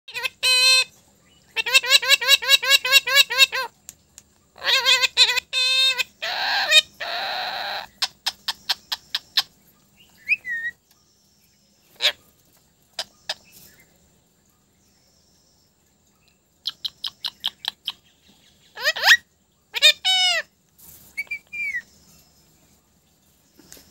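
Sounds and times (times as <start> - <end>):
parrot calls: 0.1 - 0.9, 1.5 - 3.8, 4.6 - 9.5, 10.2 - 10.8, 11.9 - 12.3, 18.7 - 20.5, 21.2 - 21.9
parrot raspy noises: 0.1 - 0.9, 1.6 - 3.8, 4.6 - 9.5, 11.9 - 12.4, 18.7 - 20.5.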